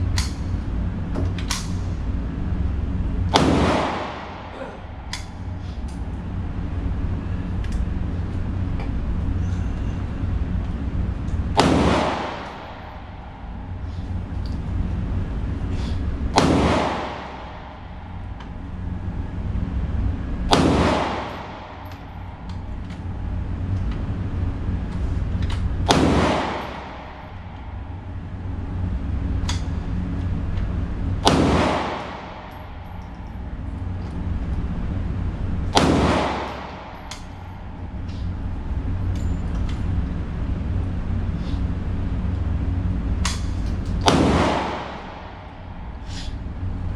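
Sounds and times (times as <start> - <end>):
steady low hum: 0.0 - 46.9
pistol shots: 3.3 - 4.5, 11.5 - 12.9, 16.3 - 17.8, 20.5 - 22.0, 25.9 - 27.3, 31.2 - 32.8, 35.7 - 37.3, 44.0 - 45.5.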